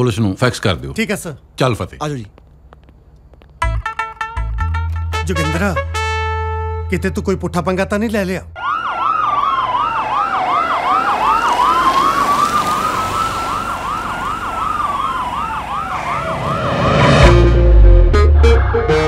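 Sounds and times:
police sirens: 0:08.6 - 0:17.3.

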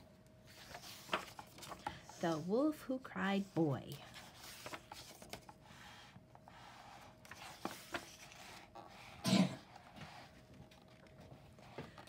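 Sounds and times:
paper page turning: 0:00.4 - 0:02.4, 0:04.0 - 0:05.6, 0:07.2 - 0:09.0.

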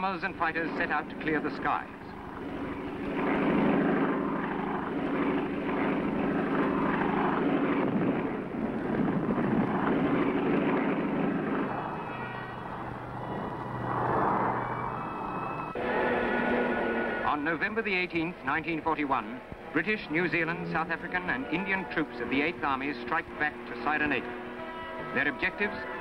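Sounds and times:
propeller aircraft droning: 0:00.0 - 0:26.0.

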